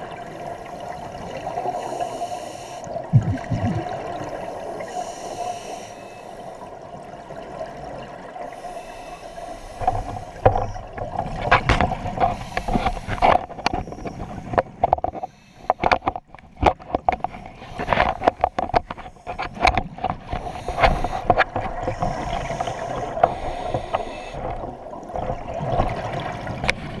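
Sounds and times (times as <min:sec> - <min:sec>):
underwater regulator bubbling: 0:01.8 - 0:05.9, 0:08.6 - 0:24.7.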